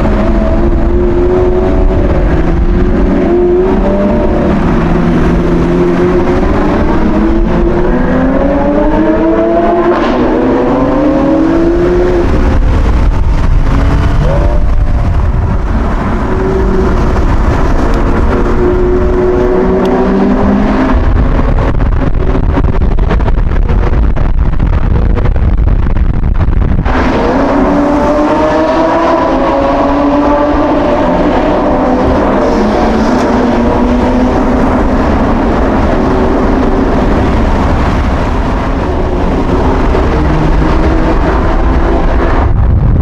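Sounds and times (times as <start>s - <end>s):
car engine accelerating hard: 0.0s - 43.0s.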